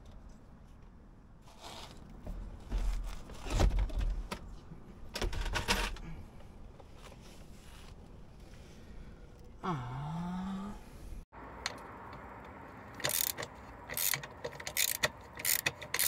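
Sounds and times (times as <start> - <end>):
hand tools clicking and scraping: 11.6 - 16.0.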